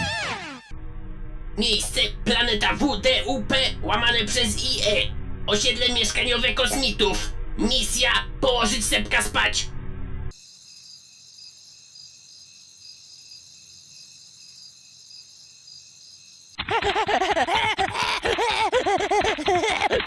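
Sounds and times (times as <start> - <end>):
crickets chirping: 10.3 - 16.6
cartoon child giggling: 16.6 - 20.0.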